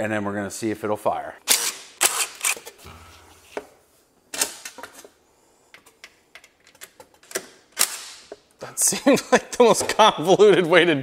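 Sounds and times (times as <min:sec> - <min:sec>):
tools clicking and knocking: 0:05.7 - 0:08.5.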